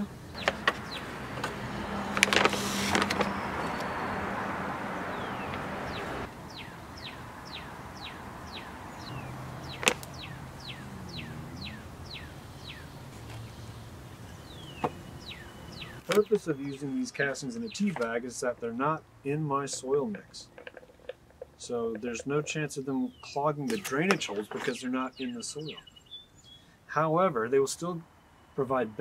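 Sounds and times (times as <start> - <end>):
plastic bag rustling: 0.4 - 4.0
bird whistling: 1.8 - 18.0, 23.1 - 26.8.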